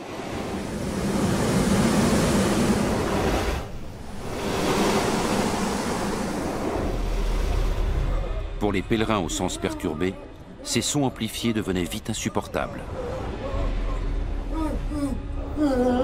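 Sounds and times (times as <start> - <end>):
water rushing through ducts: 0.0 - 9.6.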